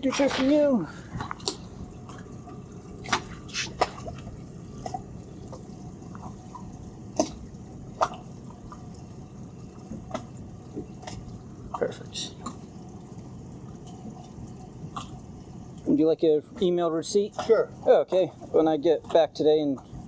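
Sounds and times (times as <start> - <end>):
waves slapping against boat hulls: 0.0 - 8.9.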